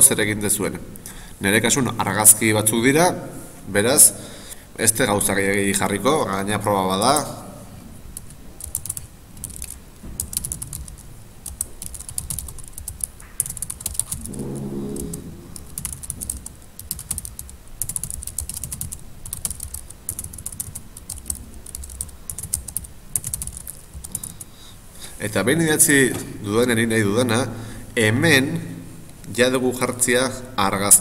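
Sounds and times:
computer keyboard typing: 0:08.2 - 0:14.2, 0:15.7 - 0:24.4.

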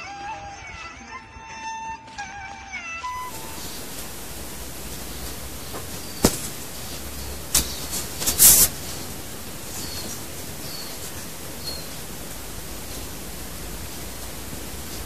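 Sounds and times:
steady hiss: 0:03.2 - 0:15.0
dog snuffling rustle: 0:03.3 - 0:15.0.

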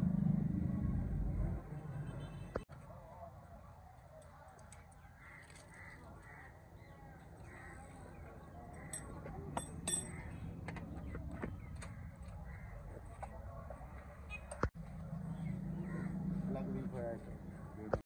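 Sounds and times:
crows cawing: 0:05.2 - 0:09.2, 0:11.9 - 0:13.0, 0:15.8 - 0:16.2.

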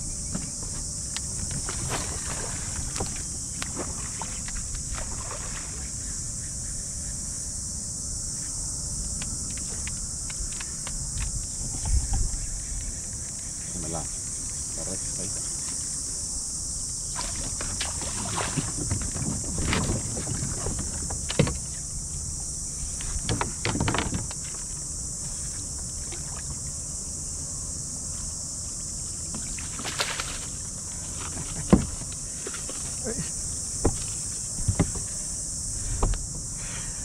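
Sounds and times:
high insect buzz: 0:00.0 - 0:37.0
water splashing: 0:01.4 - 0:05.9, 0:17.1 - 0:21.9
knocks against kayak: 0:17.2 - 0:21.8, 0:23.0 - 0:24.5, 0:31.2 - 0:32.8, 0:33.8 - 0:35.2.

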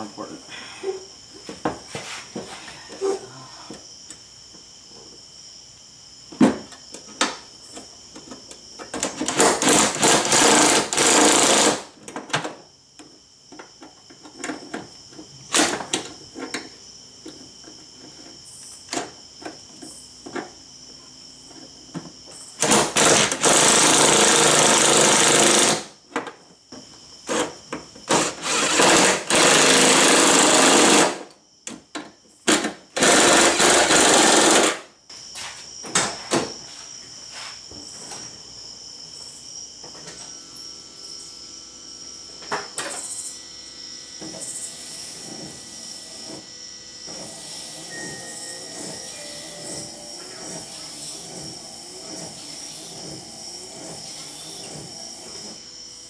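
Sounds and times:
cordless power driver running bolts: 0:09.0 - 0:11.8, 0:22.6 - 0:25.8, 0:27.2 - 0:31.2, 0:32.5 - 0:34.8.

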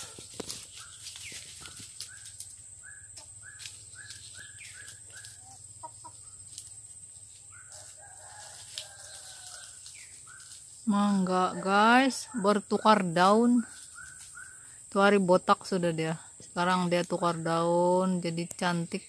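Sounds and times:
chicken clucking: 0:00.0 - 0:10.7.

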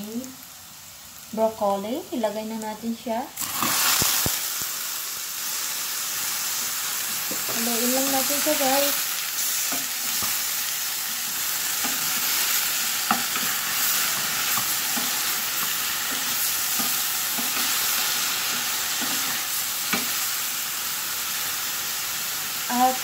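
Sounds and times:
vegetables sizzling in butter: 0:00.0 - 0:23.0
spatula knocking and scraping pan: 0:13.0 - 0:17.8, 0:18.4 - 0:20.2.

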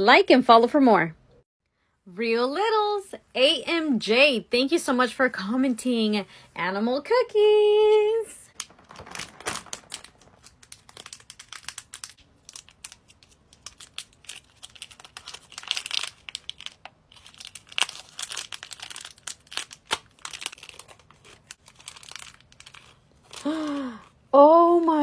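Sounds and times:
plastic wrappers crinkling and tearing: 0:08.5 - 0:25.0.

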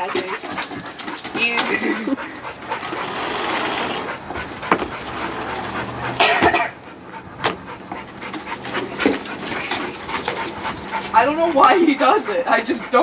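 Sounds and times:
dog panting: 0:00.0 - 0:13.0.

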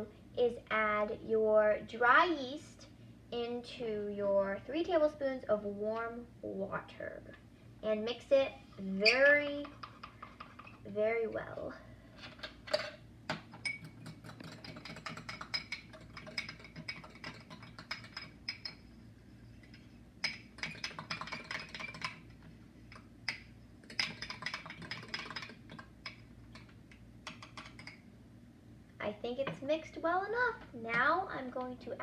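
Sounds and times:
metal spoon clinking against glass: 0:13.6 - 0:18.8.

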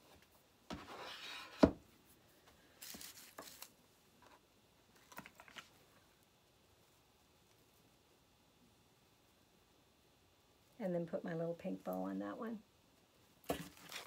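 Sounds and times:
rustling: 0:00.0 - 0:08.4, 0:13.0 - 0:14.0.

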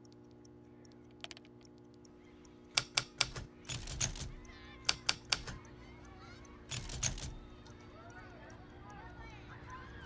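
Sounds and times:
faint ticking: 0:00.0 - 0:10.0
low steady hum: 0:00.0 - 0:10.0
loud sharp clicks: 0:02.7 - 0:05.7.

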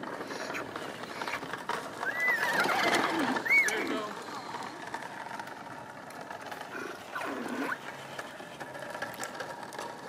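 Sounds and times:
electronic horse sound from toy: 0:00.2 - 0:04.8, 0:06.7 - 0:08.7.

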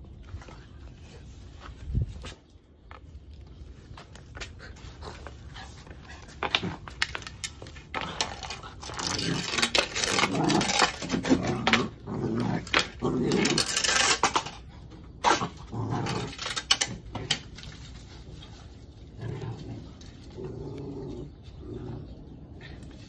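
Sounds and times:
puppy growling playfully: 0:08.0 - 0:14.1, 0:15.2 - 0:17.4, 0:19.0 - 0:23.0.

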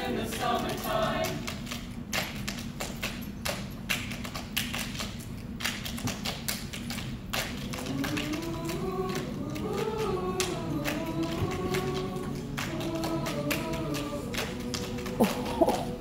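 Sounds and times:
choir singing: 0:00.0 - 0:01.5, 0:07.6 - 0:16.0.

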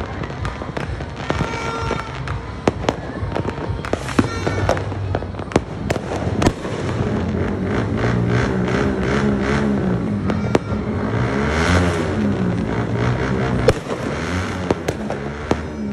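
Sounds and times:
fireworks bangs and crackles: 0:00.0 - 0:15.9.

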